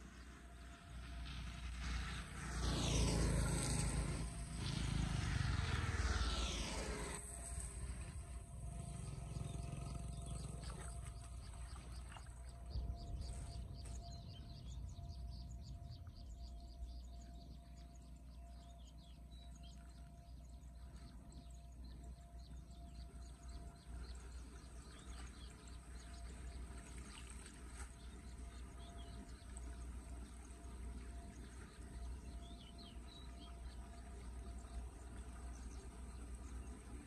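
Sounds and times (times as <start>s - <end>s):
birds chirping: 1.9s - 37.0s
shallow water splashing and trickling: 7.8s - 14.0s, 23.7s - 37.0s.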